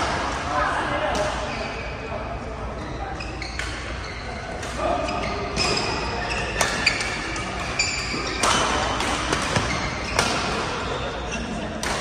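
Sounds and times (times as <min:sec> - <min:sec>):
echoing sports hall ambience: 0:00.0 - 0:12.0
shoes squeaking on court: 0:02.7 - 0:11.4
racket hitting shuttlecock: 0:05.6 - 0:10.9.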